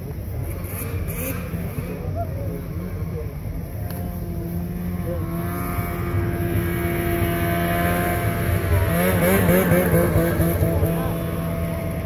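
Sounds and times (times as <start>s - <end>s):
snowmobile engine running: 2.6s - 12.0s.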